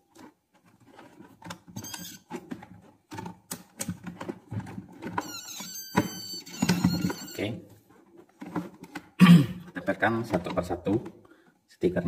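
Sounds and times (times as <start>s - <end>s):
high-pitched squeaks: 1.7s - 2.4s, 5.1s - 7.6s.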